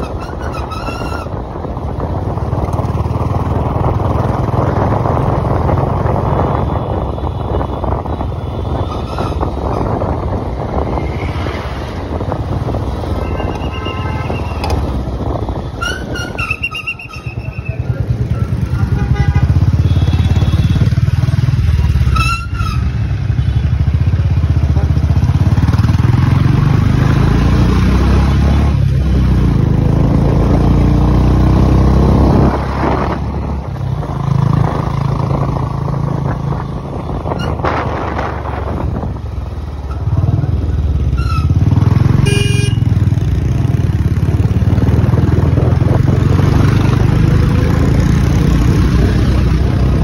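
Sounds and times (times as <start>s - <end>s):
motorcycle engine rumble: 28.7s - 50.0s
short horn beeps: 42.2s - 42.9s.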